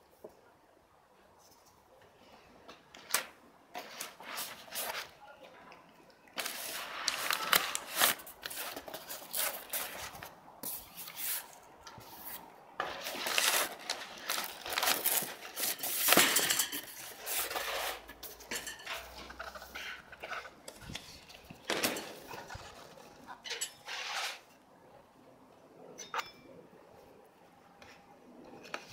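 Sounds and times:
packing paper rustling: 6.3 - 18.4.

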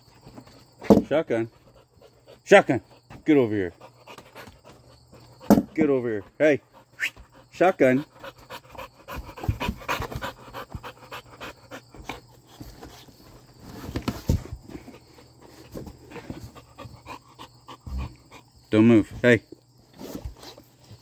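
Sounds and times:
dog panting: 1.4 - 13.5, 14.7 - 18.6.

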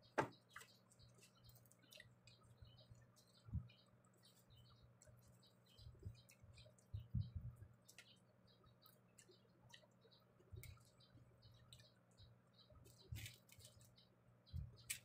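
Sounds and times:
soft low thumps: 6.9 - 7.7.

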